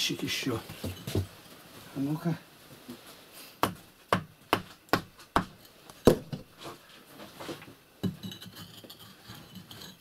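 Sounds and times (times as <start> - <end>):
scraping and tapping: 6.4 - 10.0.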